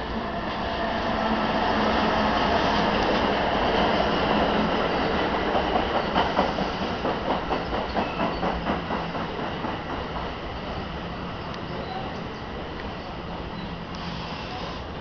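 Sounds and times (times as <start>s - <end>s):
train wheels rumbling on rails: 0.0s - 15.0s
clickety-clack over rail joints: 1.8s - 13.0s.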